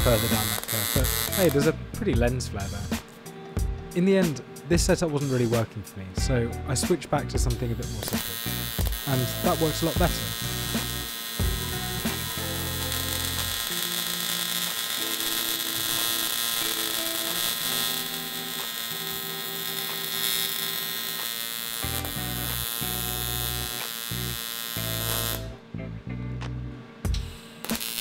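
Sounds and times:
welding arc buzzing: 0:00.0 - 0:02.0, 0:06.9 - 0:25.7, 0:27.0 - 0:28.0.

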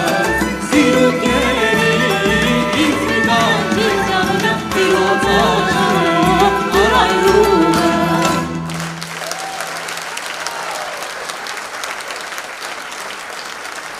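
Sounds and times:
folk song with singing and instruments: 0:00.0 - 0:09.6
audience applause: 0:08.4 - 0:13.9.

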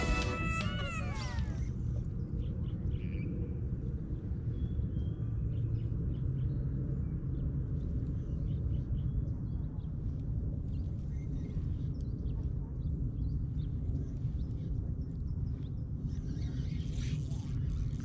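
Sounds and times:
background music: 0:00.0 - 0:01.6.

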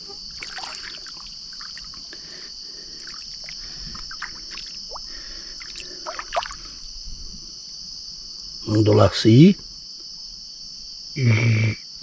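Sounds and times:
shallow water splashing: 0:00.0 - 0:06.9
night insects chorus: 0:00.0 - 0:12.0.

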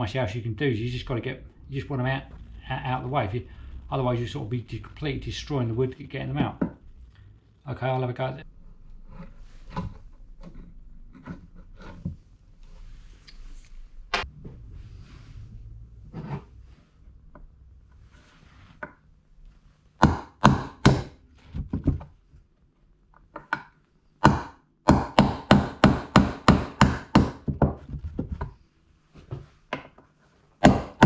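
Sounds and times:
hammer striking nail punch: 0:20.0 - 0:21.2, 0:24.2 - 0:27.4, 0:30.6 - 0:31.0.

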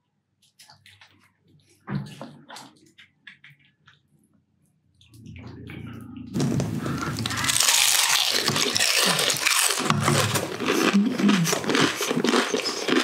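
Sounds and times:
crunching and chewing crispy food: 0:06.4 - 0:13.0.

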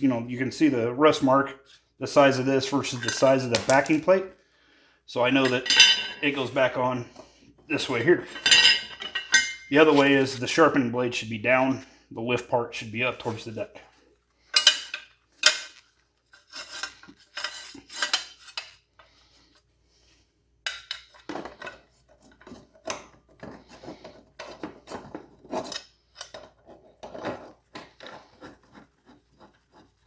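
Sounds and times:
metal clinks and scrapes: 0:03.1 - 0:04.2, 0:14.5 - 0:19.2.

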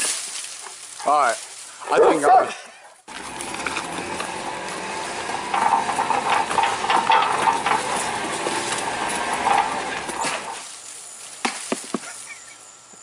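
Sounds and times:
case scraping and clattering over road: 0:03.1 - 0:10.7.

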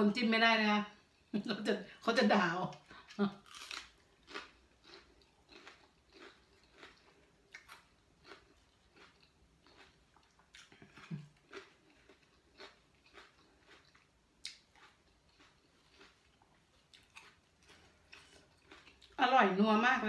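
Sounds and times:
chewing raw vegetables: 0:02.7 - 0:19.3.

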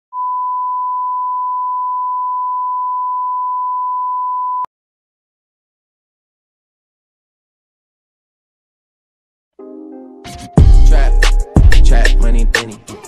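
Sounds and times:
steady pure beep: 0:00.1 - 0:04.7.

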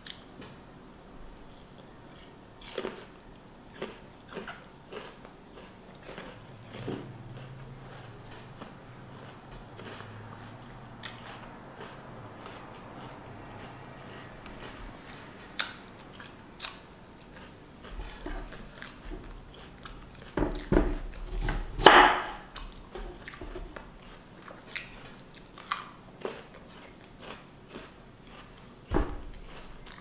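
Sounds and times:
crunchy chewing: 0:01.4 - 0:30.0
knife cutting on wooden board: 0:20.5 - 0:22.4.

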